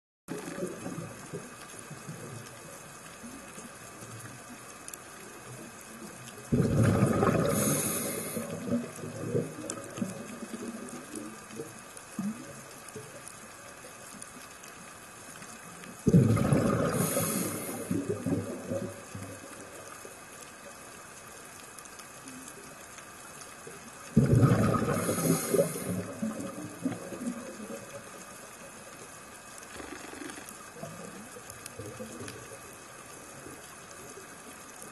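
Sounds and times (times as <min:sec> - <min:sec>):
underwater regulator bubbles: 0:06.5 - 0:12.5, 0:16.0 - 0:19.8, 0:24.1 - 0:28.2.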